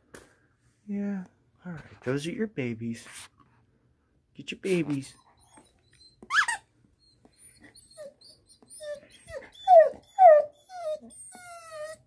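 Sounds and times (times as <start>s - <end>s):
dog whining: 5.0s - 12.0s.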